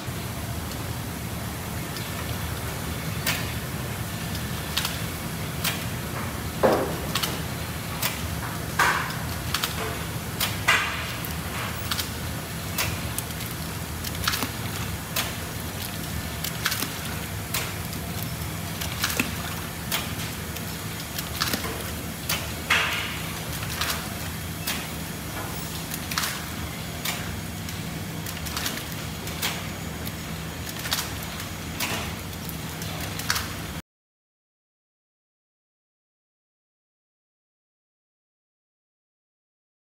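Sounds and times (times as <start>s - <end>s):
sealing machine humming: 0.1s - 33.8s
machine clacks and knocks: 5.6s - 12.1s.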